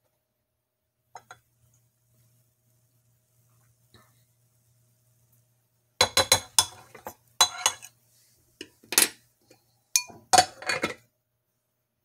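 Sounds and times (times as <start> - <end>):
pot and glass lid clattering: 6.0 - 7.9, 10.0 - 11.0.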